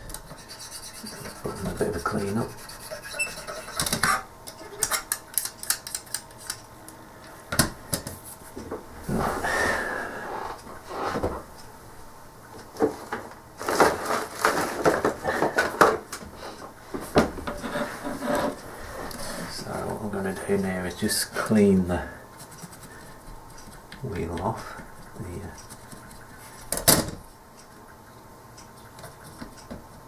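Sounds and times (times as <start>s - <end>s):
scraping rustle: 12.8s - 15.8s, 17.0s - 19.6s
small hard items clattering: 13.6s - 16.0s.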